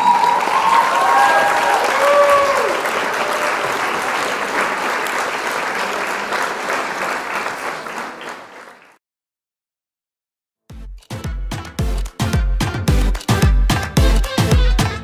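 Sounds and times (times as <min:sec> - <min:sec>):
crowd applauding: 0:00.0 - 0:09.0.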